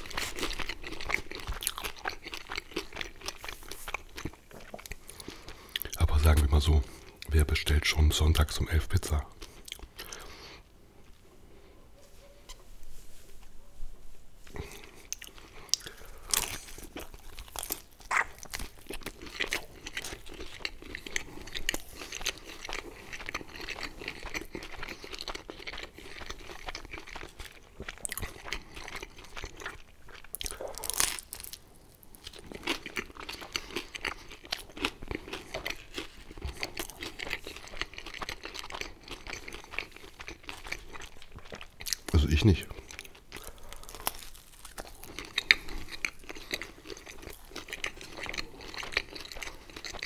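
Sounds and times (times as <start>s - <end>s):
chewing crunchy pizza crust: 0.0s - 11.6s, 14.4s - 50.0s.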